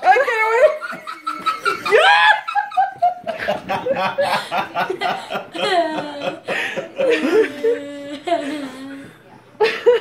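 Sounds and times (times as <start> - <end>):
woman laughing: 0.0 - 8.9
child laughing: 4.2 - 8.9.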